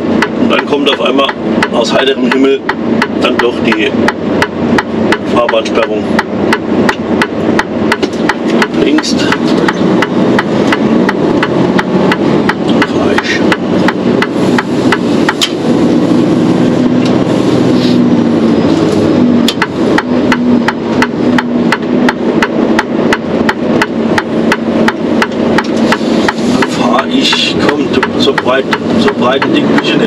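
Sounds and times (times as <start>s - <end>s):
truck engine and road noise: 0.0s - 30.0s
turn signal ticking: 0.0s - 30.0s.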